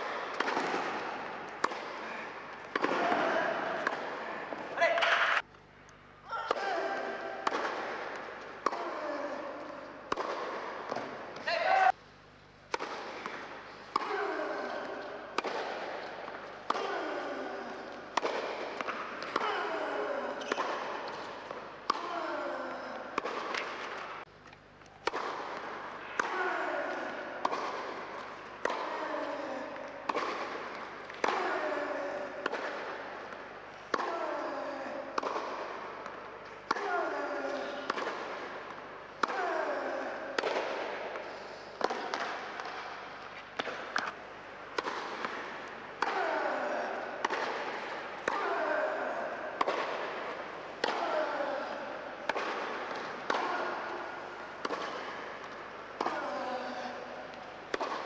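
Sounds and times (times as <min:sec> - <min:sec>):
tennis ball hit by racket: 0:00.0 - 0:05.4, 0:06.5 - 0:09.0, 0:09.6 - 0:11.5, 0:12.7 - 0:17.0, 0:18.2 - 0:22.2, 0:23.1 - 0:24.2, 0:25.0 - 0:29.0, 0:30.1 - 0:33.3, 0:33.9 - 0:34.5, 0:35.1 - 0:36.9, 0:37.6 - 0:39.5, 0:40.2 - 0:46.5, 0:47.1 - 0:48.8, 0:49.5 - 0:56.4, 0:57.7 - 0:58.0.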